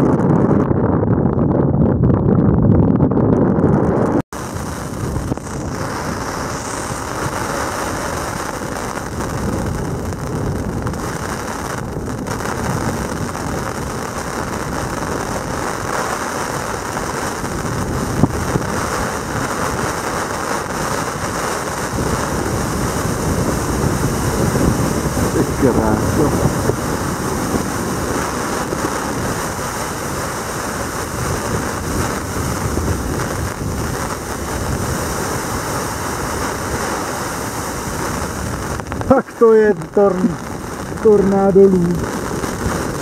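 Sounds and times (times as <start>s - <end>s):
storm wind blowing: 0.0s - 43.0s.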